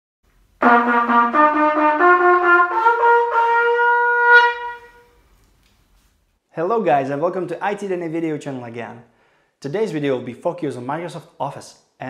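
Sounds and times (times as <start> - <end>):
trumpet fanfare: 0.6 - 5.1.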